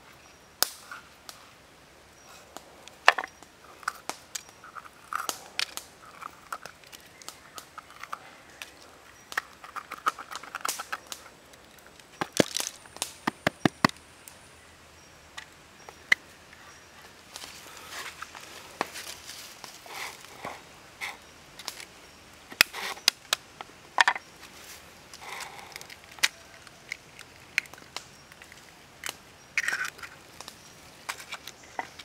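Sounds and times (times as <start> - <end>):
sharp clicks and taps: 12.2 - 14.0.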